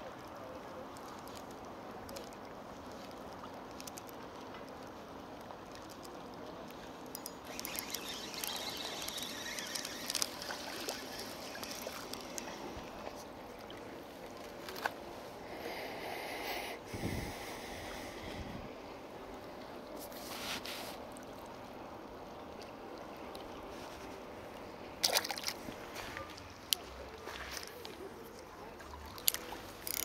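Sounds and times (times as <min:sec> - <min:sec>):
water lapping at rocky shore: 0:00.0 - 0:16.0, 0:16.9 - 0:30.0
water splashing: 0:07.1 - 0:15.0, 0:25.0 - 0:30.0.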